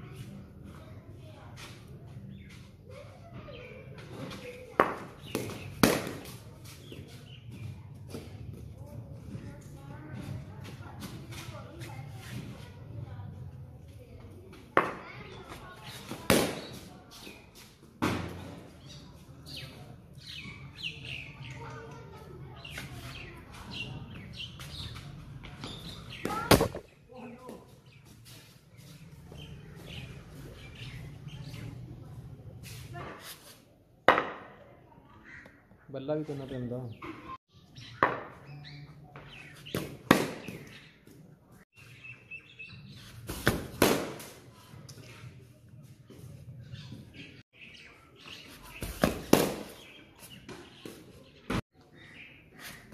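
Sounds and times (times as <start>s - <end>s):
cricket bat hitting ball: 4.8s - 6.3s, 39.8s - 40.6s, 43.4s - 44.3s, 49.0s - 49.8s
birds chirping: 18.4s - 32.3s, 35.0s - 43.4s, 44.6s - 52.9s.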